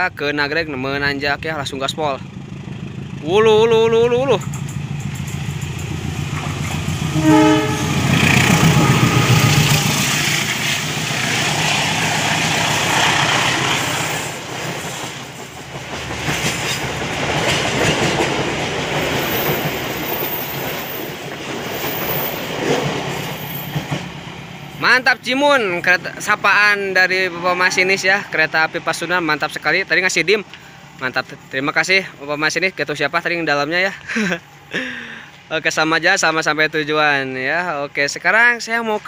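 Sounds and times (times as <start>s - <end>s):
locomotive engine roaring: 0.4s - 32.2s
train wheels clattering on rails: 4.2s - 24.4s
train horn toot: 7.1s - 9.8s, 27.1s - 28.3s.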